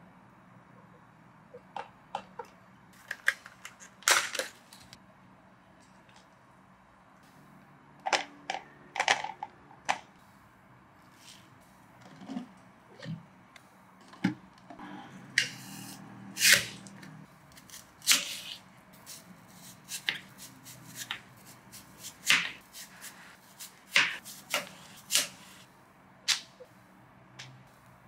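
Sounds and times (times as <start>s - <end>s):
knife cutting apple: 17.6s - 25.6s.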